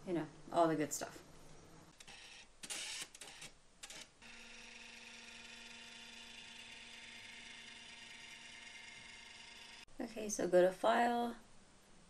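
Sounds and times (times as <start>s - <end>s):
scanner motor whirring: 2.0s - 9.9s.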